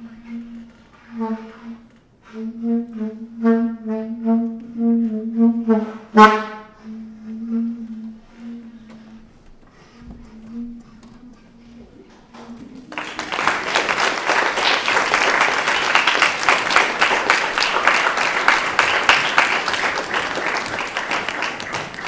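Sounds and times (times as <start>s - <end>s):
audience applauding: 12.3s - 22.0s.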